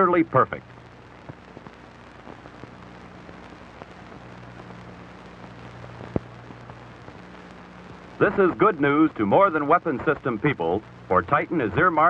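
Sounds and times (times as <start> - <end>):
film soundtrack hiss: 0.0 - 12.0
small crackles: 0.0 - 12.0.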